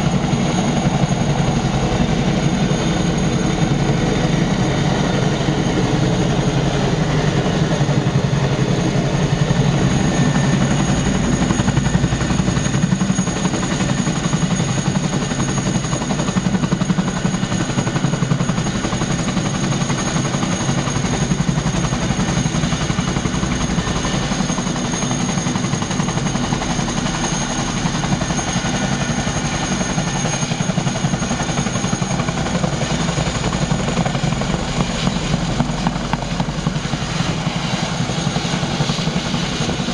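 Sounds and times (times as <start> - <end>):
helicopter rotor beat: 0.0 - 39.9.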